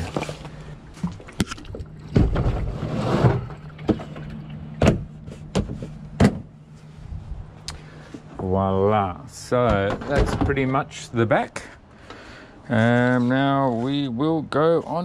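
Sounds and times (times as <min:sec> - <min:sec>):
steady low hum: 0:00.0 - 0:15.0
box scraping on metal plate: 0:02.3 - 0:03.6.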